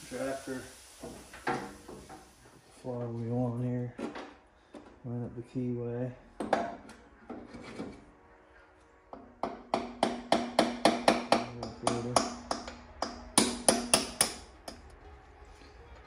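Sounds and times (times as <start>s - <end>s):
steady hum: 5.1s - 16.0s
sharp metallic knocks: 9.1s - 14.8s.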